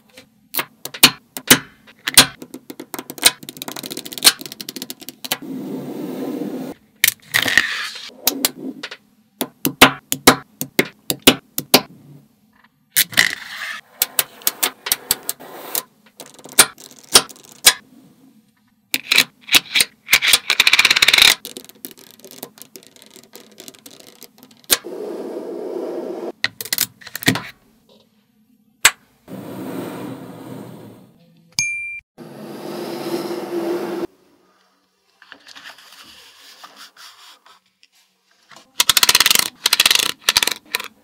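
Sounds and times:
magnet balls clicking together: 0:00.6 - 0:05.4, 0:16.1 - 0:17.8, 0:19.0 - 0:24.8, 0:38.8 - 0:41.0
balls scraping over plastic card: 0:02.5 - 0:09.0, 0:13.0 - 0:18.2, 0:19.0 - 0:26.4, 0:38.8 - 0:41.0.

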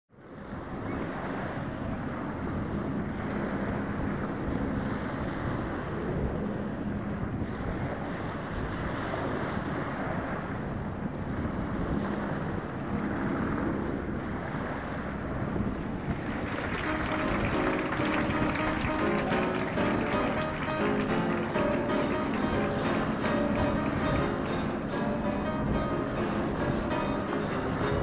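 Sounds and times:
wind on microphone: 0:00.3 - 0:19.0.

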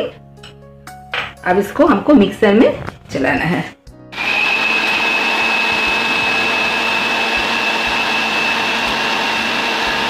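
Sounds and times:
mixer grinder motor whining: 0:04.1 - 0:10.0.

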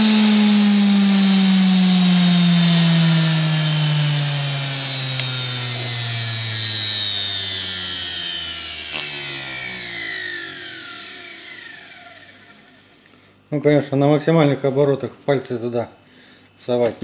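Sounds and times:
motor whine winding down: 0:00.0 - 0:13.4.

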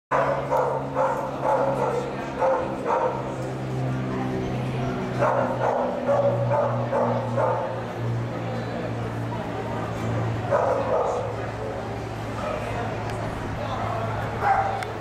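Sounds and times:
dog barking: 0:00.1 - 0:03.3, 0:05.2 - 0:07.8, 0:10.5 - 0:11.3, 0:14.4 - 0:14.8.

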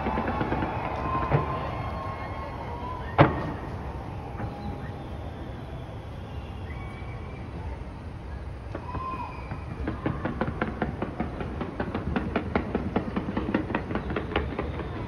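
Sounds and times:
firework bang: 0:00.0 - 0:05.3, 0:08.7 - 0:15.0.

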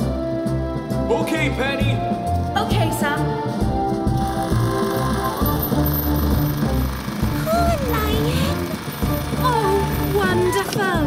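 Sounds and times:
background music: 0:00.0 - 0:11.0.

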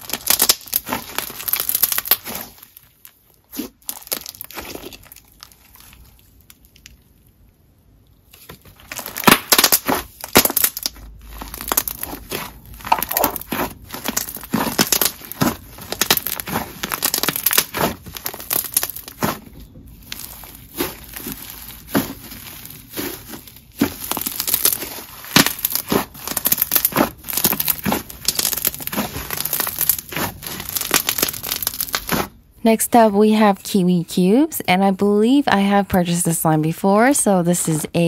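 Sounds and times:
slime being squished by hand: 0:00.0 - 0:07.1, 0:08.3 - 0:32.4.

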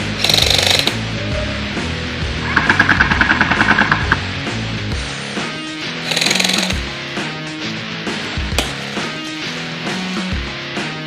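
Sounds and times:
airsoft rifle full-auto burst: 0:00.0 - 0:01.0, 0:06.0 - 0:06.9
background music: 0:00.0 - 0:11.0.

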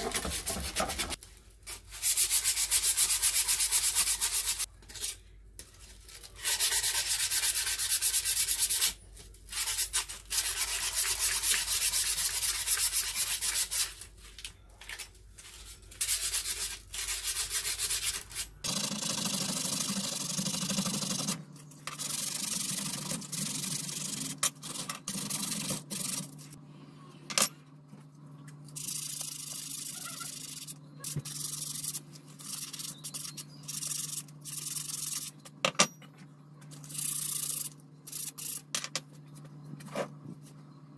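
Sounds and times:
sandpaper scratching on metal: 0:01.9 - 0:04.7, 0:06.4 - 0:08.9, 0:09.5 - 0:14.0, 0:16.0 - 0:18.5, 0:29.0 - 0:35.4.

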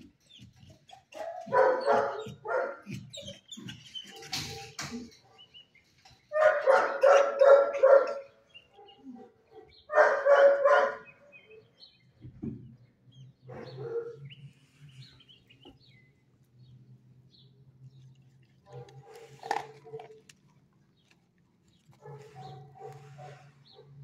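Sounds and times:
dog barking: 0:01.2 - 0:02.9, 0:06.3 - 0:11.2, 0:13.5 - 0:14.3, 0:18.7 - 0:20.2, 0:22.0 - 0:24.0.

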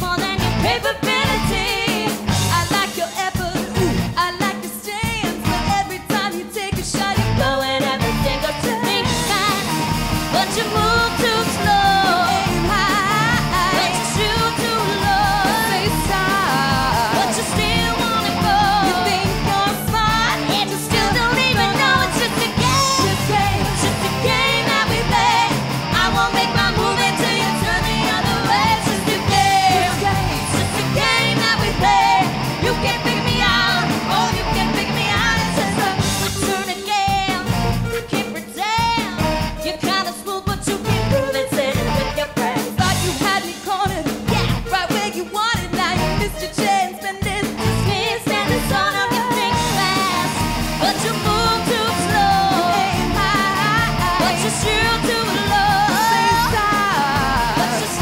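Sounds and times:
rock band playing live: 0:00.0 - 0:58.0
women singing lead: 0:00.0 - 0:58.0.

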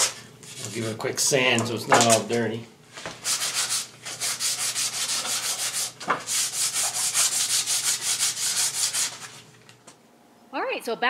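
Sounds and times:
sandpaper rubbing on wood: 0:03.2 - 0:09.4.

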